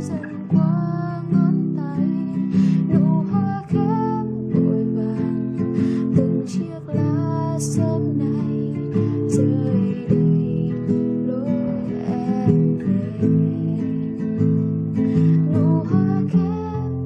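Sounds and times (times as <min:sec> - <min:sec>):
classical guitar playing solo: 0:00.0 - 0:17.0.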